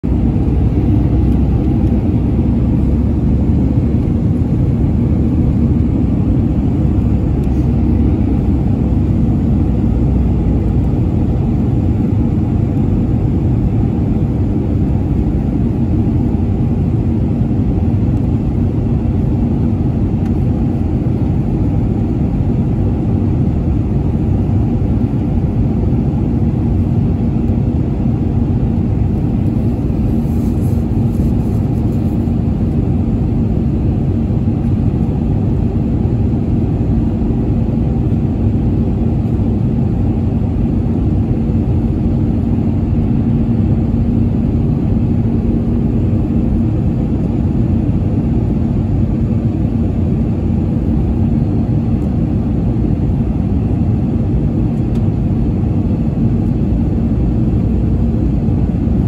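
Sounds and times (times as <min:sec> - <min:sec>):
jet airliner cabin rumble: 0:00.0 - 0:59.0.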